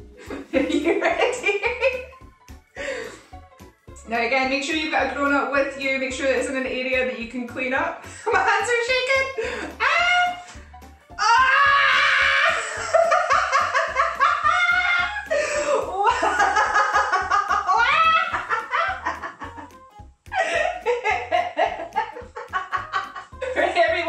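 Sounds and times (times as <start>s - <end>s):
background music with bass beat: 0.0s - 24.0s
woman laughing and exclaiming: 0.2s - 2.2s, 8.2s - 10.6s, 11.2s - 24.0s.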